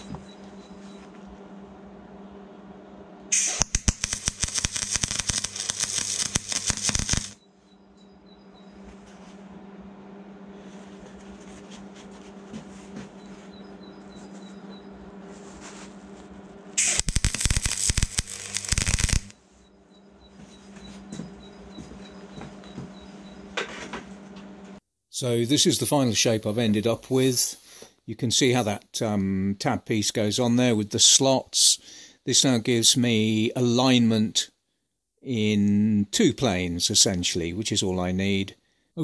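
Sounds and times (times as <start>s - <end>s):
steady hum: 0.0s - 27.0s
welder arc crackling: 3.3s - 7.4s, 16.8s - 19.4s.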